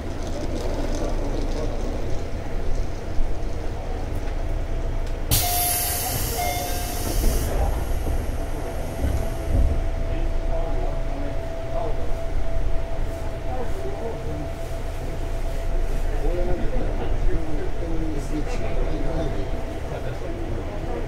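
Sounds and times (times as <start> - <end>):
train wheels rumbling: 0.0 - 21.0
faint steady whine: 2.4 - 21.0
loud hiss: 5.3 - 9.5.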